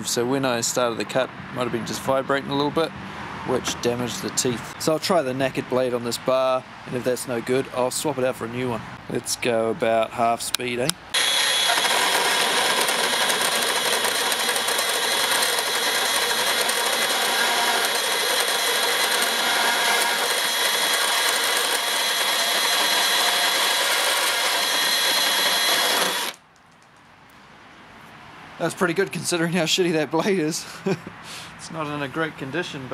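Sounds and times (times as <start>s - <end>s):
bandsaw cutting metal bar: 11.1s - 26.4s.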